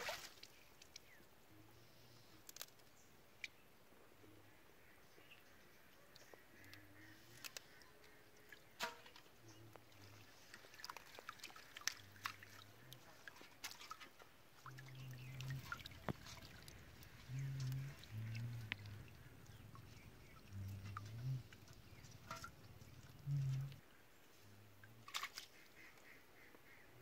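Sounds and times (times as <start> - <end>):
water splashing and dripping: 0.0 - 1.1, 7.4 - 23.9, 25.0 - 25.7.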